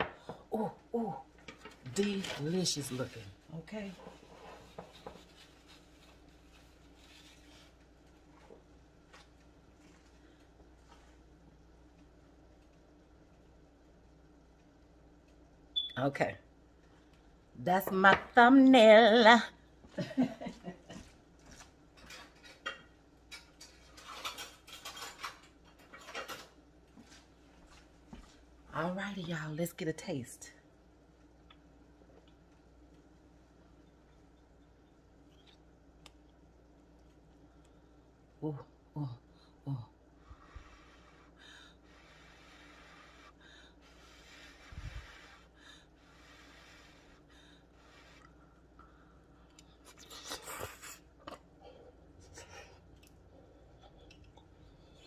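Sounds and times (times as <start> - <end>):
dishes and cutlery clinking: 21.9 - 26.5.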